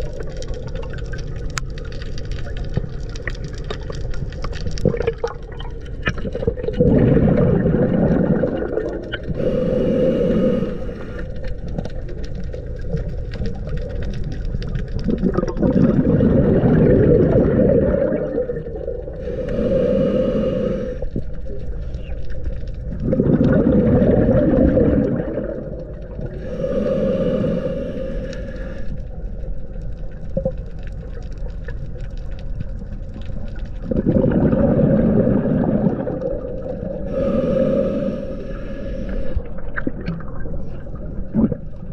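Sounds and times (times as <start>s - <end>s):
exhaled bubbles: 0.0s - 41.9s
diver breathing through regulator: 9.2s - 11.5s, 19.0s - 21.4s, 26.2s - 29.1s, 36.8s - 39.6s.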